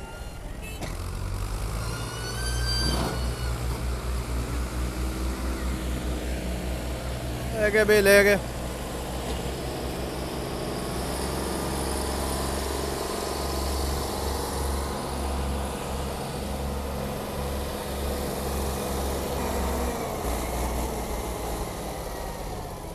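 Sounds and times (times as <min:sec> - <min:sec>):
tractor diesel engine under load: 0:00.0 - 0:22.9.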